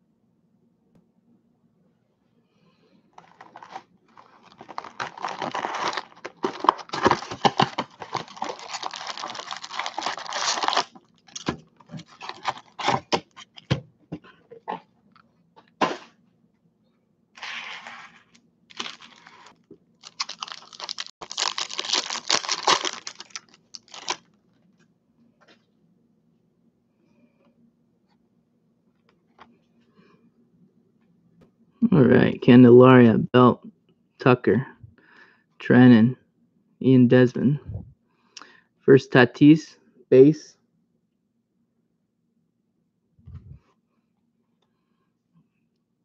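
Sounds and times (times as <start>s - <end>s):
foil wrapper crinkling and tearing: 3.2s - 13.6s, 17.4s - 24.3s
cardboard box tearing open: 4.4s - 11.5s, 12.2s - 13.3s, 20.1s - 24.2s.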